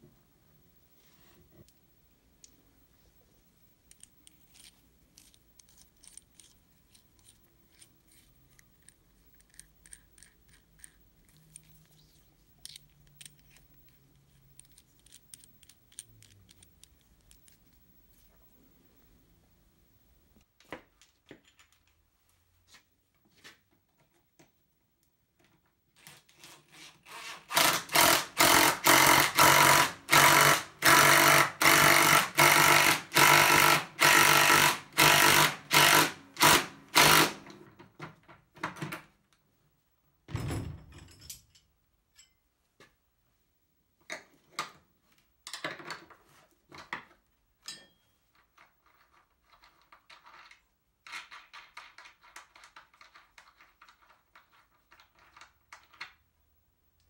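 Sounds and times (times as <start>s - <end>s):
handling knocks and clicks: 3.8s - 18.2s
cordless drill driving into wood: 27.1s - 37.4s.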